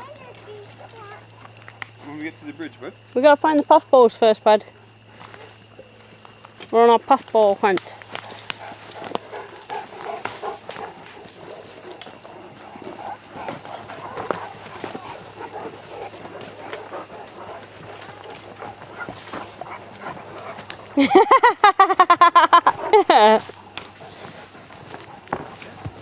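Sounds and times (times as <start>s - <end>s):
footsteps through undergrowth: 5.0s - 21.0s, 22.9s - 26.0s.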